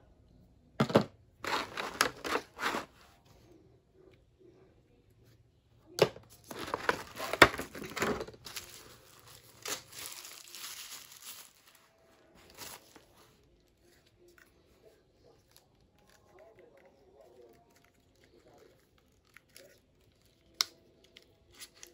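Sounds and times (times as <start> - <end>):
packaging rustling and crinkling: 1.4 - 3.0, 6.4 - 13.7.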